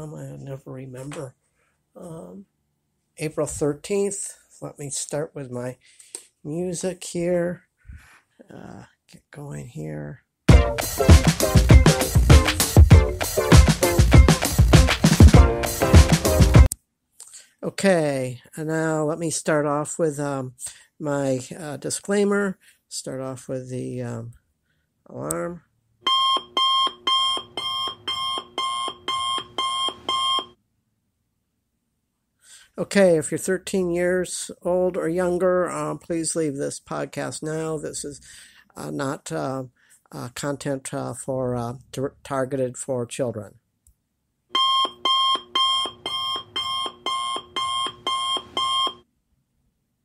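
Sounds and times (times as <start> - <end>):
electronic alarm beeping: 26.0 - 30.6, 44.5 - 49.1.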